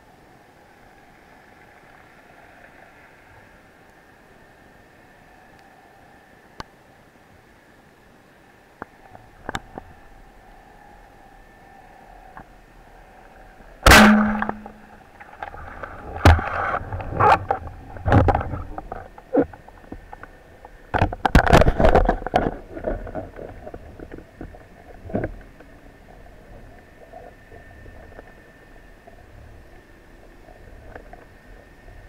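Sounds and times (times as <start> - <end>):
short low hum: 13.8 - 19.4
underwater knocks and clunks: 15.4 - 20.3, 20.9 - 25.7.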